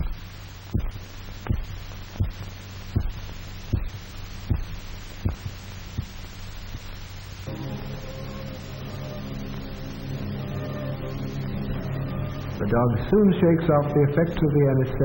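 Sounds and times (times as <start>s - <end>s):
heartbeat: 0.0s - 7.3s
steady low hum: 0.0s - 15.0s.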